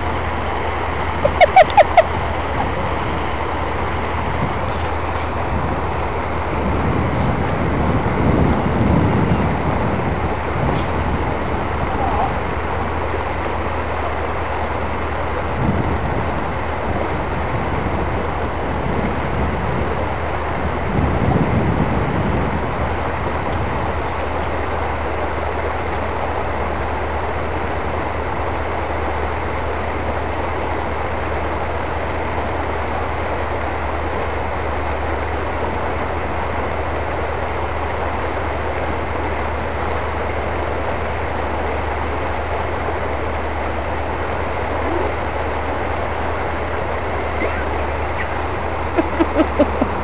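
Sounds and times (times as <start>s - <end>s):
engine idling: 22.8s - 50.0s.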